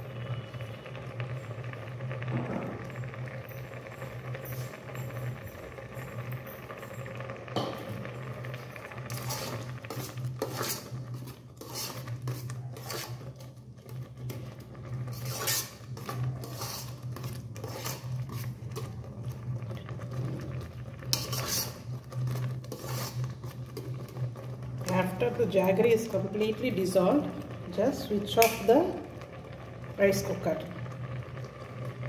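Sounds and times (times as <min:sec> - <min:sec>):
metal spoon scraping metal pot: 0:08.4 - 0:19.0, 0:21.0 - 0:26.2.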